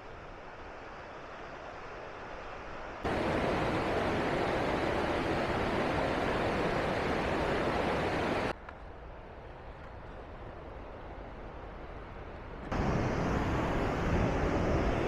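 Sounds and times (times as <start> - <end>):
stream rushing over boulders: 0.4 - 8.5.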